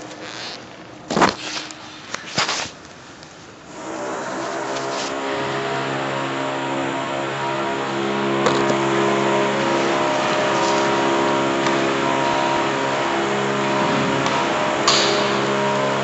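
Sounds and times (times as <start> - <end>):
sanding machine running: 3.6 - 16.0.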